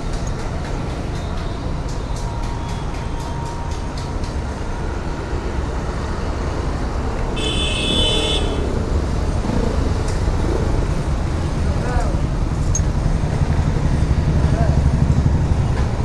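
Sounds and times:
low rumble of road traffic: 0.0s - 16.0s
vehicle horn: 7.4s - 8.8s.

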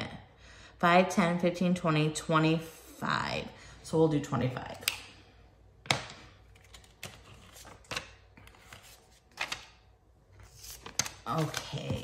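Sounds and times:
paper bills rustling and tapping: 6.6s - 9.8s, 10.4s - 12.0s.

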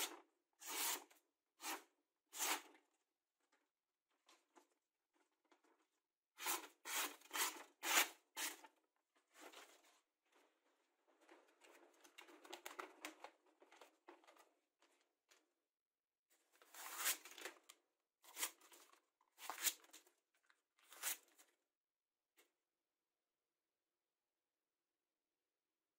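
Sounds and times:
knife slicing paper: 16.7s - 17.4s.

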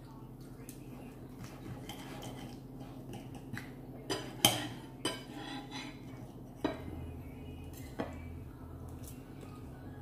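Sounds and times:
cutlery clinking on plates: 1.8s - 6.9s.

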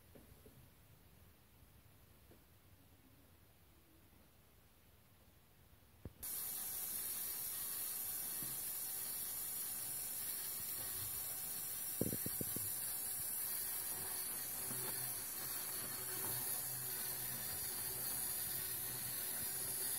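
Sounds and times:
toy motor hiss and whir: 6.2s - 19.9s.

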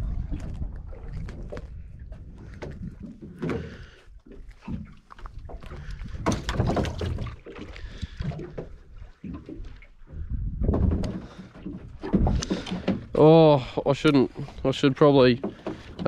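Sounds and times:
wind rumble: 0.0s - 3.3s, 10.0s - 13.2s
water lapping against hull: 0.0s - 16.0s
knocks and clatter: 6.2s - 7.4s, 10.6s - 13.2s.

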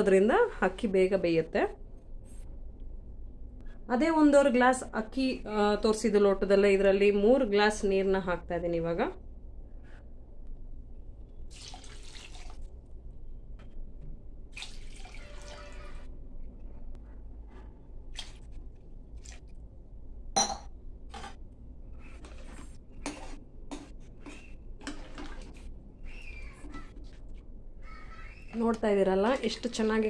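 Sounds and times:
water pouring into pot: 11.5s - 12.7s, 14.5s - 16.0s.

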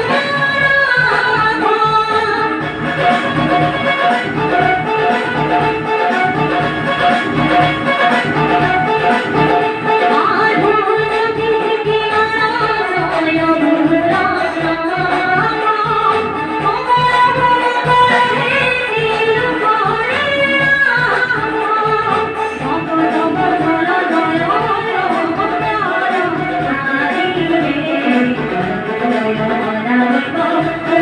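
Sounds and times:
woman singing into a microphone: 0.0s - 31.0s
electronic keyboard chords and beat: 2.6s - 10.1s.

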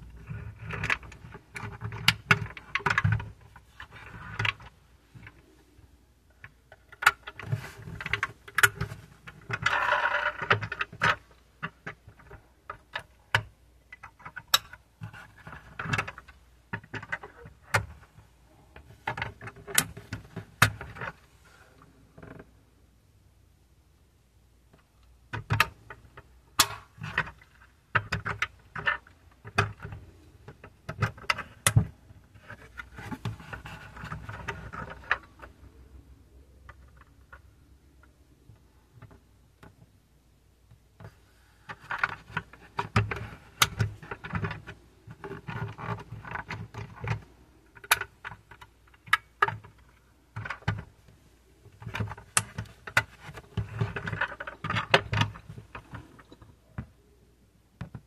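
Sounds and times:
model car clicks and rattles: 0.0s - 5.4s, 6.4s - 18.2s, 18.8s - 21.2s, 24.8s - 35.6s, 40.7s - 56.5s.

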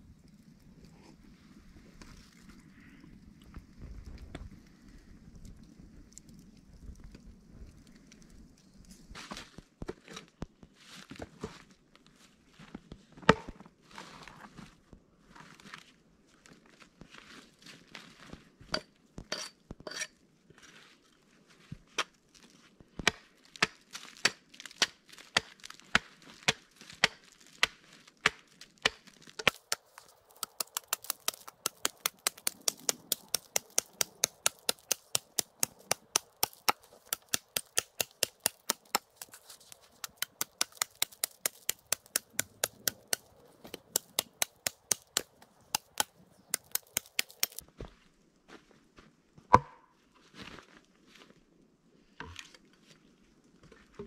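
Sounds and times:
hatchet chopping log: 23.0s - 47.6s, 49.5s - 49.8s.

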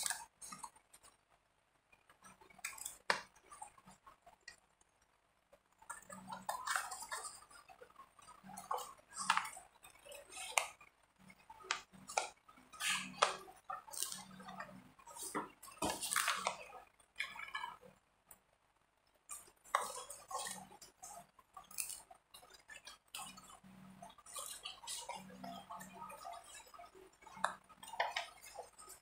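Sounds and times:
paper rustling: 15.1s - 16.6s.

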